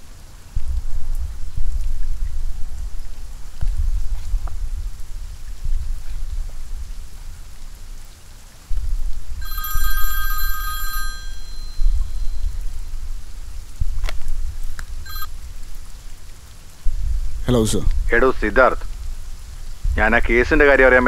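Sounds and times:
mobile phone ringing: 0:09.4 - 0:12.6, 0:15.1 - 0:15.3.

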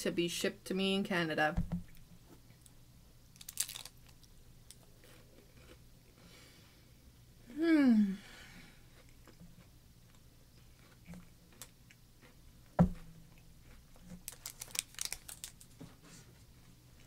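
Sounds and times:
packaging crackling: 0:03.4 - 0:04.8, 0:14.2 - 0:15.8.

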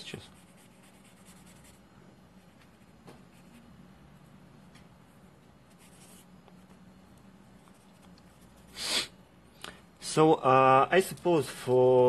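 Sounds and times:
low steady hum: 0:00.0 - 0:12.0
pencil scratching on paper: 0:00.3 - 0:01.8, 0:02.4 - 0:03.7, 0:05.7 - 0:06.3.

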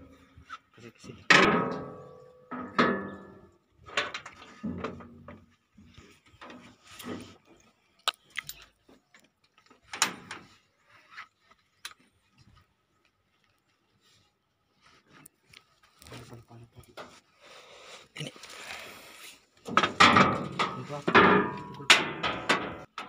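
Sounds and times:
metal tools clanking on steel: 0:01.3 - 0:05.4, 0:19.7 - 0:23.0.

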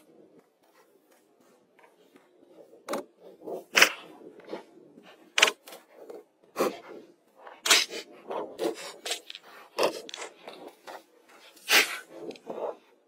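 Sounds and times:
stones scraping: 0:07.0 - 0:12.8.

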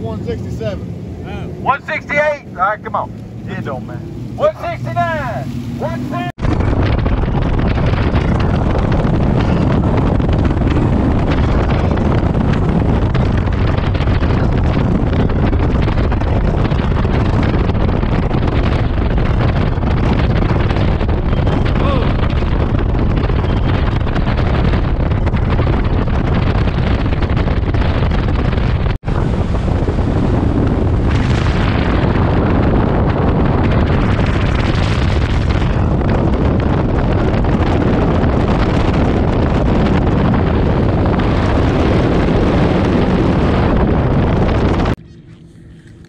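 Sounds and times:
boat engine drone: 0:00.0 - 0:46.0
wind buffeting microphone: 0:00.0 - 0:46.0.

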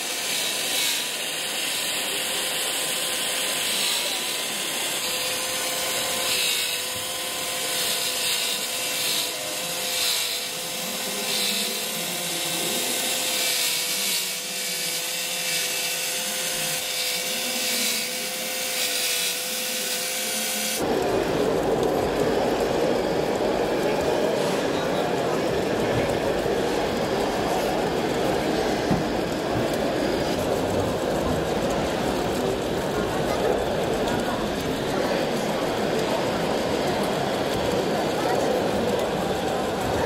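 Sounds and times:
electric motor whining: 0:00.0 - 0:22.3.

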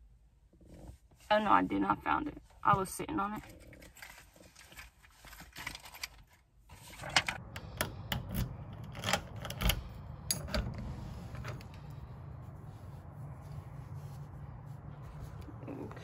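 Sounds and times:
low steady hum: 0:00.0 - 0:16.0
keys and deadbolt clicking: 0:07.8 - 0:10.8.

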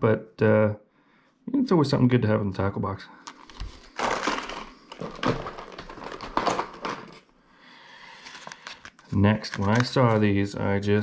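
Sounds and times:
plastic blister packs crinkling: 0:03.3 - 0:07.2, 0:08.1 - 0:10.2.

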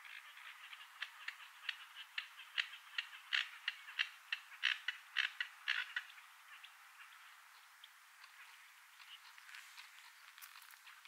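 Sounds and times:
bird clicking calls: 0:00.0 - 0:06.8, 0:07.8 - 0:11.0.

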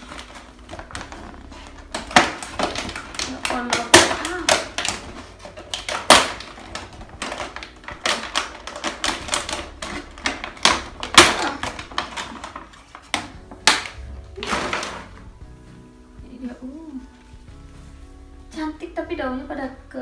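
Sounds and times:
plastic sleeve crackling: 0:00.0 - 0:15.4.

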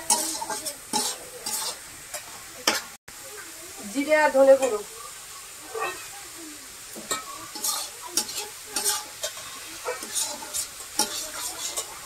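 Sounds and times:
spatula scraping a pan: 0:00.0 - 0:03.0, 0:05.7 - 0:06.2, 0:06.9 - 0:12.0
spices frying in oil: 0:00.0 - 0:12.0.

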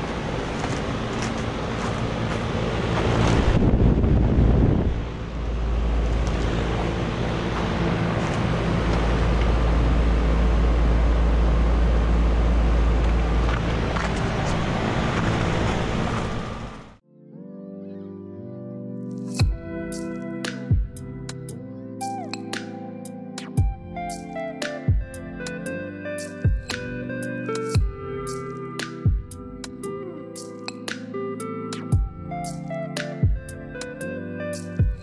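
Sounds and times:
compressor hum: 0:00.0 - 0:17.0
fan rushing air: 0:00.0 - 0:17.0
wind rumbling on microphone: 0:00.4 - 0:09.6.

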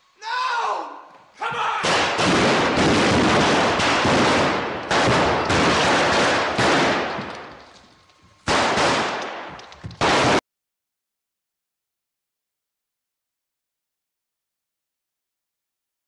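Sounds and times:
pyrotechnic charges exploding: 0:01.8 - 0:07.6, 0:08.4 - 0:10.4
guns firing blanks: 0:01.8 - 0:10.4.

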